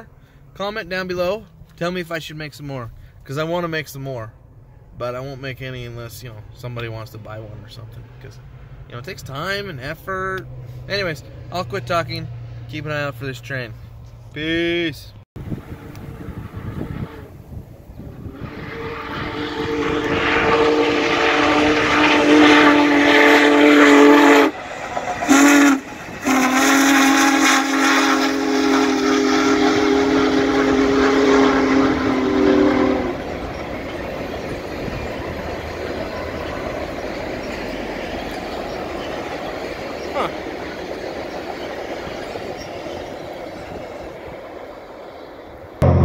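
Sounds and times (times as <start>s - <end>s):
train cars rolling by: 15.4s - 46.0s
steam locomotive whistle: 15.6s - 40.5s.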